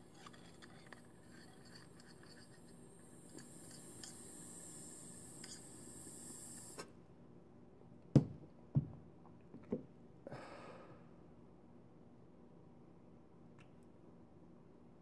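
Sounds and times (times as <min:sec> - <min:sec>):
hiss with faint crackle: 0:00.0 - 0:07.0
glass knocking on surface: 0:08.2 - 0:09.0
breathy exhale: 0:10.3 - 0:11.2.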